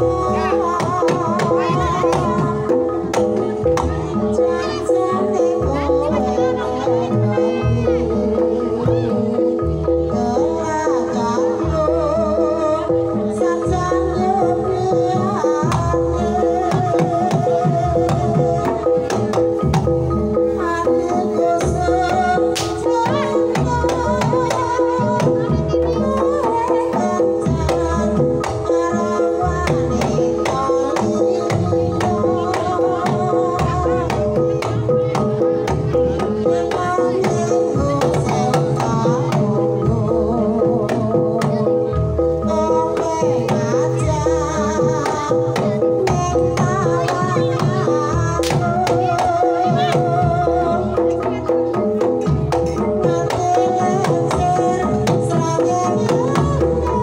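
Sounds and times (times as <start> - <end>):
ringing keyed percussion tones: 0.0 - 57.0
woman singing wavering melody: 0.0 - 57.0.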